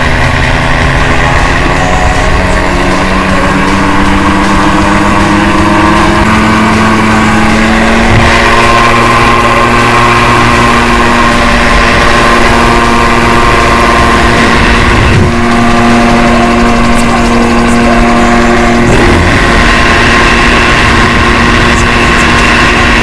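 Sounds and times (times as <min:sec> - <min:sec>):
gyrocopter engine droning: 0:00.0 - 0:23.0
wind on microphone: 0:14.4 - 0:15.5.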